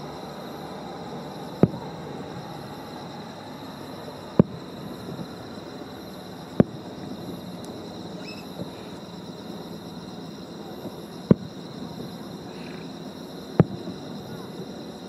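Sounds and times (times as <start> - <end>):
steady background hiss: 0.0 - 15.0
fireworks booms: 1.6 - 1.9, 4.4 - 4.6, 10.8 - 11.5, 13.6 - 14.0.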